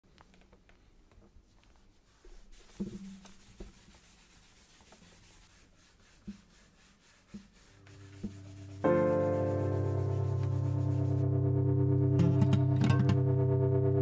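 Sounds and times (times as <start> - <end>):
sanding block rasping on wood: 2.4 - 11.2.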